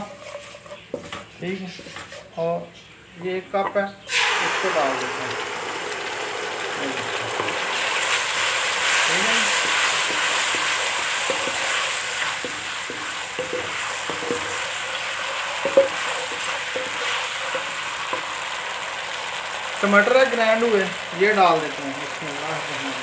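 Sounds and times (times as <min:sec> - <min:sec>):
wooden spatula scraping pan: 0:00.0 - 0:02.4, 0:08.8 - 0:18.4
sauce sizzling in hot oil: 0:04.1 - 0:23.0
spatula clacking against pan: 0:09.6 - 0:18.4.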